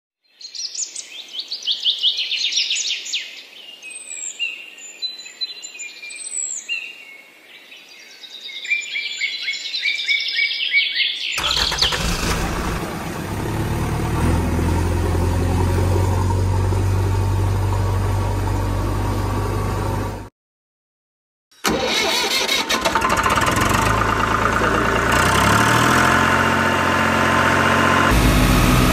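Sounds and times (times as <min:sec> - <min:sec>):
vehicle engine droning: 0:11.4 - 0:20.3, 0:22.8 - 0:28.9.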